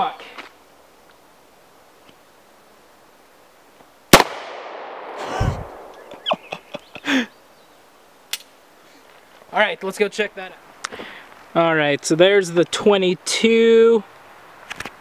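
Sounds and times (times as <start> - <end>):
pistol shot echoing: 4.1 - 6.2.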